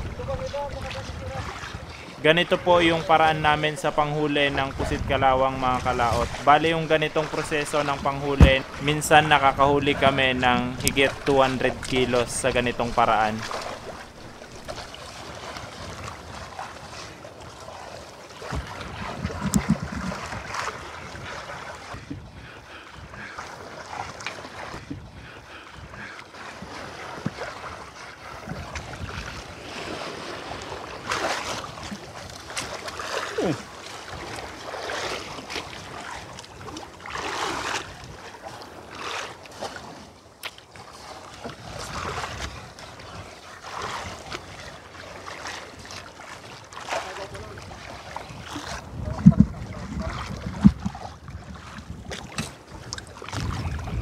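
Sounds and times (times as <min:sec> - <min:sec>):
wind on microphone: 0:00.0 - 0:06.6, 0:18.4 - 0:23.3, 0:24.7 - 0:32.8, 0:41.4 - 0:44.7, 0:47.4 - 0:54.0
water lapping against boat hull: 0:00.0 - 0:54.0.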